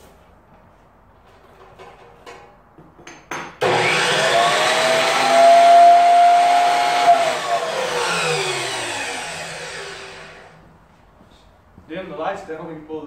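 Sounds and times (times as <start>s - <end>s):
cut-off saw motor whine: 3.6s - 10.6s
saw blade winding down: 3.6s - 10.6s.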